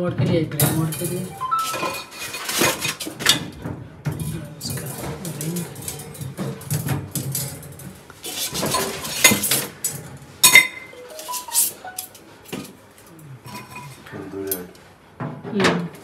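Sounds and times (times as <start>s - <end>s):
metal racks clinking and rattling: 0.0s - 12.8s.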